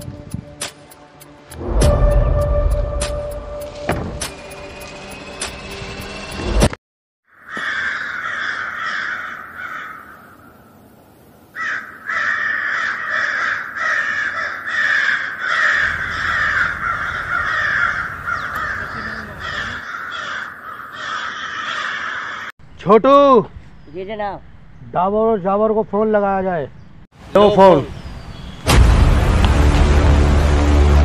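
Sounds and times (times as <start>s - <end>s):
crows cawing: 7.3s - 10.7s, 11.5s - 22.6s.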